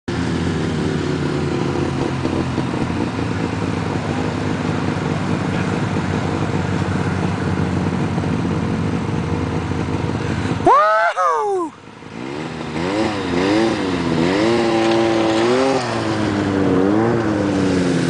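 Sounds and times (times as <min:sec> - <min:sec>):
truck engine at high revs: 0:00.1 - 0:18.0
wheels spinning on snow: 0:00.2 - 0:11.0, 0:12.2 - 0:18.0.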